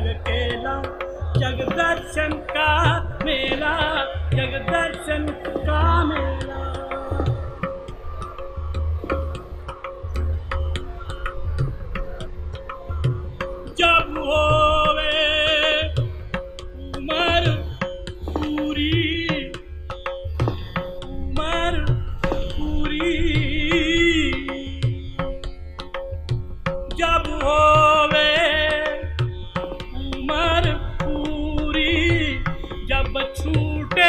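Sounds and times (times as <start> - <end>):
tabla strokes: 0.0 - 34.0.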